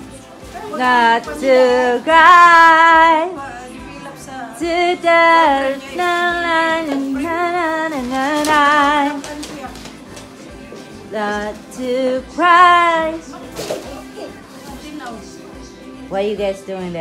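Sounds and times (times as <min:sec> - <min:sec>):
woman singing with vibrato: 0:00.5 - 0:09.8, 0:11.1 - 0:13.6.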